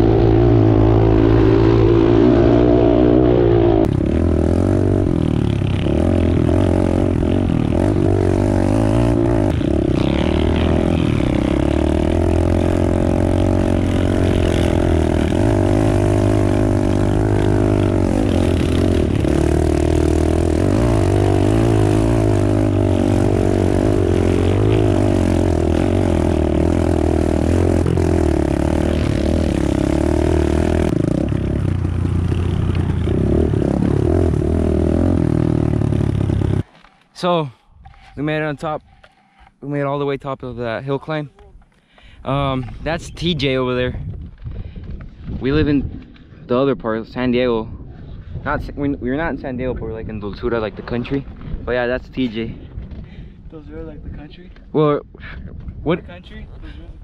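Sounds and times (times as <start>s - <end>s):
pit bike engine revving: 0.0s - 36.7s.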